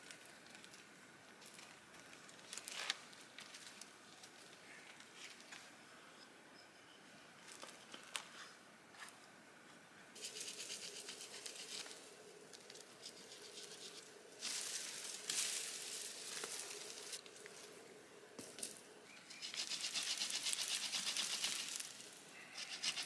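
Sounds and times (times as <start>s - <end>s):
branches and leaves rustling: 0.0s - 5.8s, 10.2s - 23.0s
knife whittling wood: 22.6s - 23.0s.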